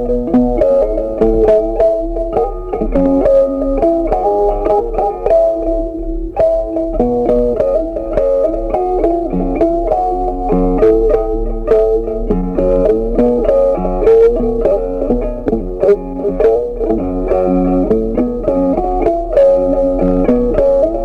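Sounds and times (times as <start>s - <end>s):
plucked melody music: 0.0s - 21.0s.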